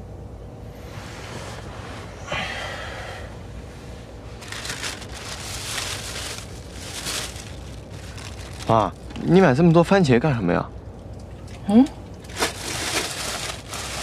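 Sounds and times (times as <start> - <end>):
low car interior rumble: 0.0 - 9.4
plastic bag crinkling: 4.4 - 9.1, 12.2 - 14.0.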